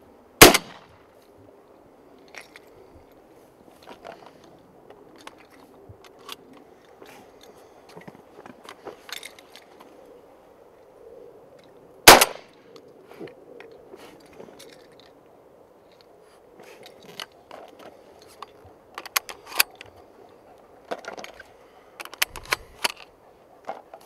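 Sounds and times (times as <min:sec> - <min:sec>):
shotgun shot: 0:00.4 - 0:00.9, 0:12.1 - 0:12.5.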